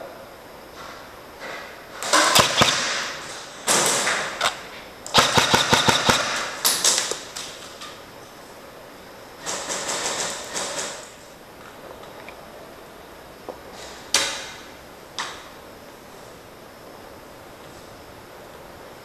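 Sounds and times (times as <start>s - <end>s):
electric airsoft rifle bursts: 2.2s - 6.9s.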